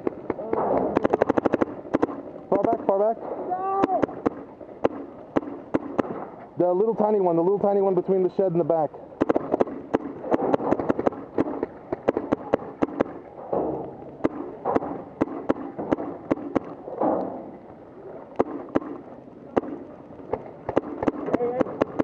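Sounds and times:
paintball markers popping: 0:00.0 - 0:02.9, 0:09.2 - 0:13.2.

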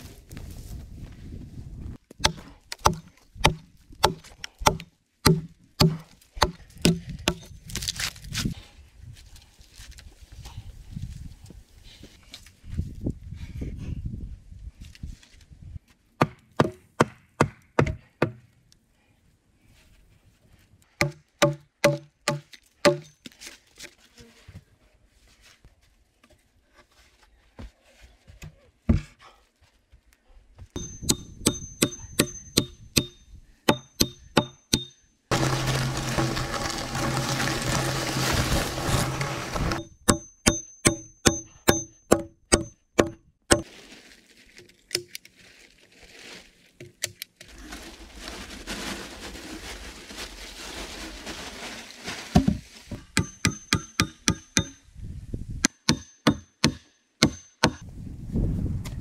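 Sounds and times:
axe chopping logs: 0:02.1 - 0:07.6, 0:16.2 - 0:18.4, 0:21.0 - 0:23.1, 0:30.8 - 0:43.7, 0:53.1 - 0:54.8, 0:55.6 - 0:57.8.

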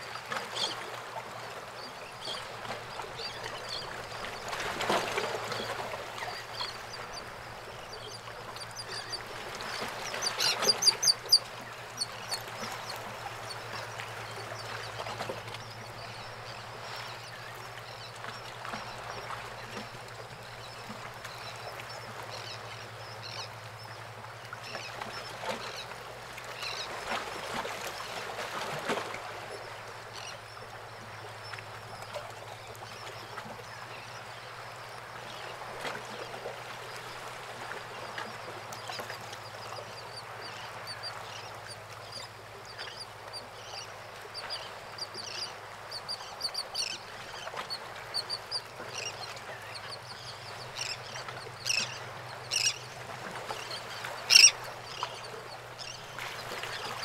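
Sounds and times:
birds calling: 0:03.0 - 0:16.3, 0:44.6 - 0:57.0.

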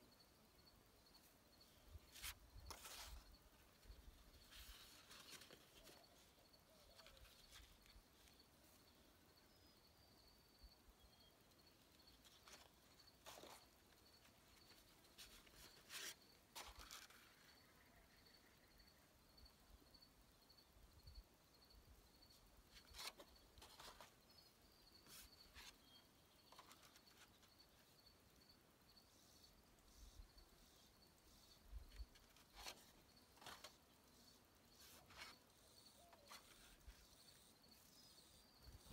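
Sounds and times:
faint high chirping: 0:00.0 - 0:38.9
paper sheets rustling on concrete: 0:02.1 - 0:06.3, 0:12.2 - 0:13.6, 0:14.2 - 0:17.5, 0:22.8 - 0:24.2, 0:32.1 - 0:33.8.

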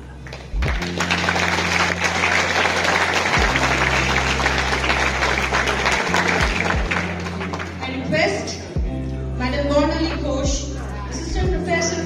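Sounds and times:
audience applauding: 0:00.0 - 0:07.8
low music notes: 0:00.0 - 0:12.0.

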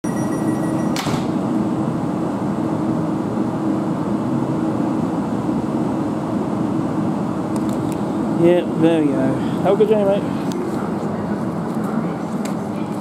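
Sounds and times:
faint held tone: 0:00.0 - 0:01.0
electric train humming: 0:00.0 - 0:13.0.

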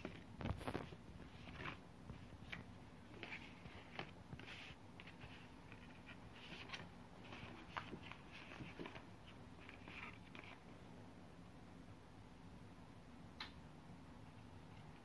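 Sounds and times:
paper rustling: 0:00.0 - 0:10.6.

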